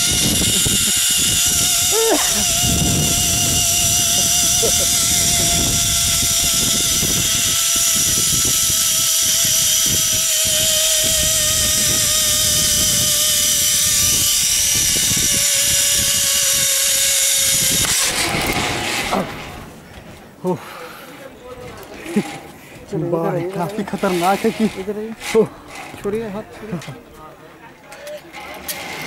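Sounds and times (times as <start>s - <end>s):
hissing rush: 0.0s - 19.8s
mechanical whirring whine: 0.0s - 19.8s.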